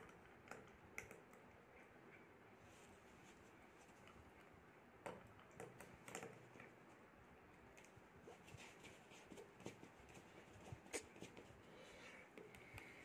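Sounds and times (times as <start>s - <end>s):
light irregular clicks and taps: 0.0s - 2.2s, 3.8s - 6.8s, 12.3s - 13.0s.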